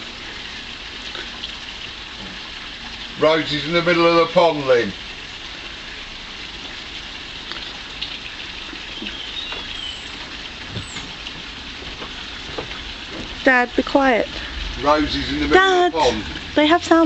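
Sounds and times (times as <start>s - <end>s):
outdoor background hiss: 0.0s - 17.0s
faint bird whistles: 8.9s - 10.2s.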